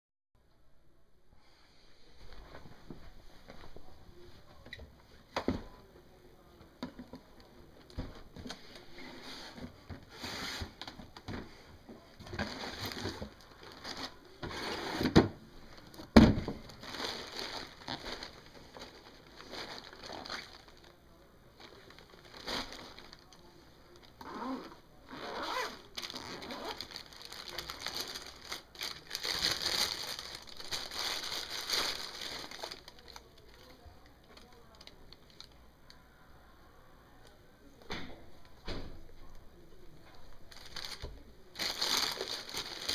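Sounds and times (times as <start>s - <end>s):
tissue paper crinkling: 16.7s - 21.0s, 21.6s - 24.1s, 25.4s - 33.8s, 40.5s - 42.9s.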